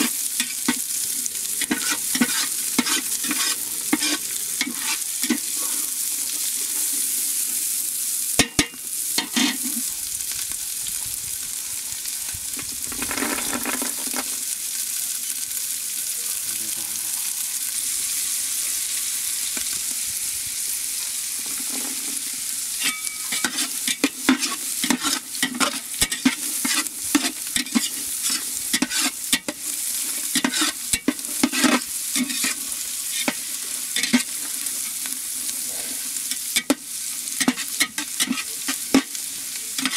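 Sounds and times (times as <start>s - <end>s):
peas sizzling in oil: 0.0s - 39.9s
metal spatula scraping a pot: 1.6s - 5.9s, 9.2s - 9.9s, 22.8s - 35.0s, 37.4s - 39.1s.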